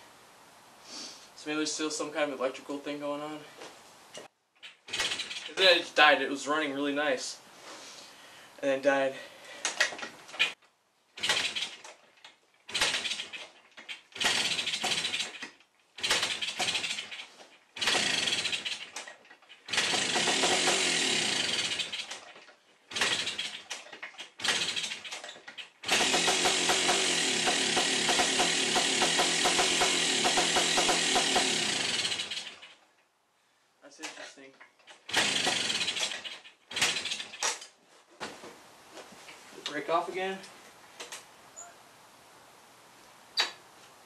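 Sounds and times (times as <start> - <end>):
dirt bike kickstart: 4.2 - 5.8, 9.6 - 10.6, 11.2 - 32.8, 34.0 - 37.8, 41.0 - 41.2
two-stroke dirt bike engine running: 4.9 - 5.5, 11.2 - 11.8, 12.7 - 13.4, 14.1 - 15.4, 16.0 - 17.2, 17.8 - 18.9, 19.7 - 22.1, 22.9 - 23.7, 24.4 - 25.1, 25.8 - 32.8, 35.0 - 37.4.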